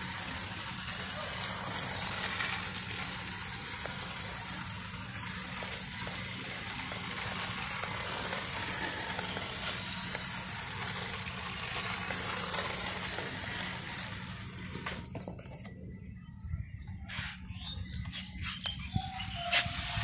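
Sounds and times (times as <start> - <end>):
tyres rolling on concrete: 0.0 - 15.8
toy car motor whirring: 0.0 - 16.0, 16.8 - 20.0.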